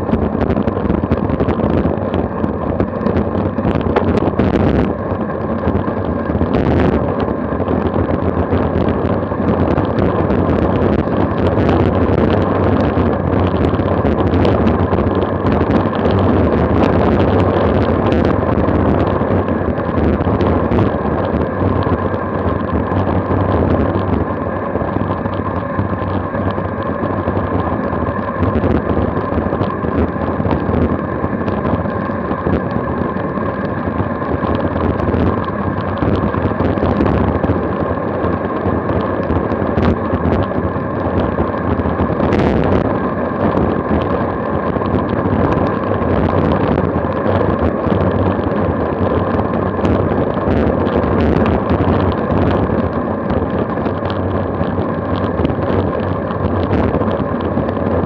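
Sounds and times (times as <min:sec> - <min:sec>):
faint steady whine: 0:00.0 - 0:58.0
wind buffeting microphone: 0:00.0 - 0:58.0.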